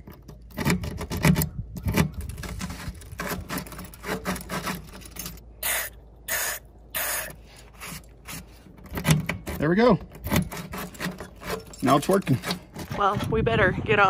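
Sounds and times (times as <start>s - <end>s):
key rattling in a lock: 9.0s - 12.9s.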